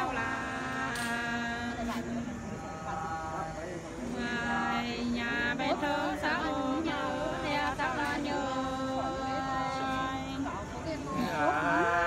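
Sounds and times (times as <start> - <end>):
unaccompanied person singing folk song: 0.0 - 12.0.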